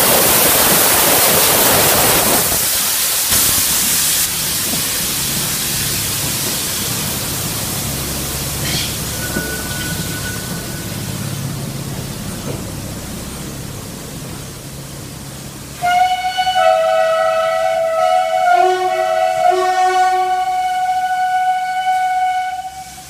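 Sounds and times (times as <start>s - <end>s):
railcar rumbling on track: 0.0s - 23.0s
loud train horn blast: 15.8s - 23.0s.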